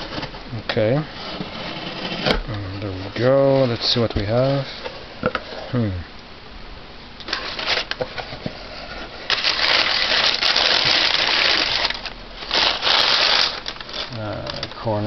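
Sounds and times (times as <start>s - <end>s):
packing paper crinkling in a box: 7.3s - 8.0s, 9.3s - 15.0s.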